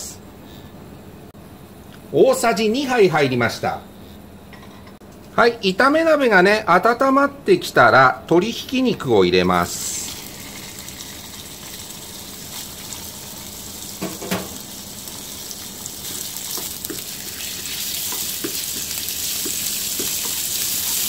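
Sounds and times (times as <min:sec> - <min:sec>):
meat sizzling in a frying pan: 0:09.8 - 0:21.0
spatula tapping and scraping pan: 0:16.5 - 0:17.2, 0:17.9 - 0:21.0.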